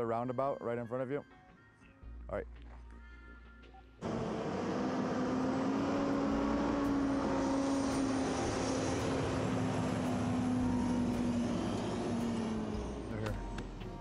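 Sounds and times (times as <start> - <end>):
truck diesel engine droning: 4.0 - 14.0.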